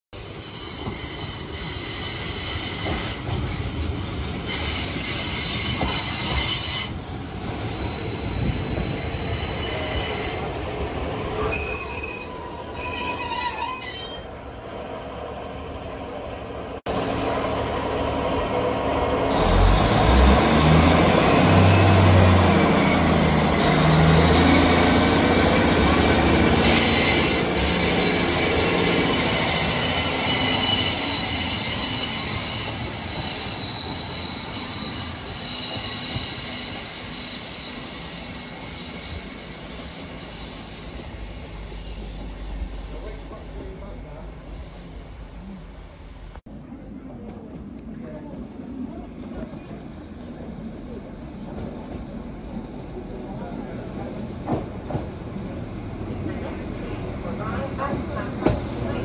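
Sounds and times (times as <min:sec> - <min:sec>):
wheels and brakes squealing: 0:00.2 - 0:14.5, 0:19.3 - 0:46.4, 0:52.5 - 0:59.0
rail running noise: 0:00.2 - 0:59.0
diesel train engine accelerating: 0:16.8 - 0:26.8.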